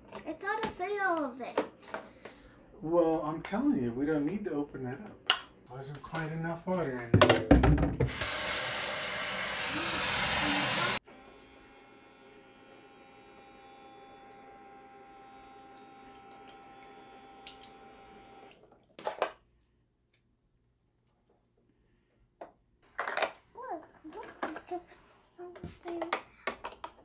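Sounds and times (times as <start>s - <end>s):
tap water running into tank: 8.0s - 11.5s, 13.7s - 18.9s.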